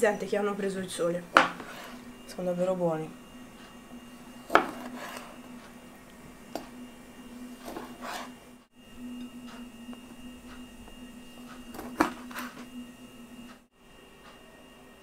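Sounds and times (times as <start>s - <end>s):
knife cutting tomatoes: 4.5s - 5.4s.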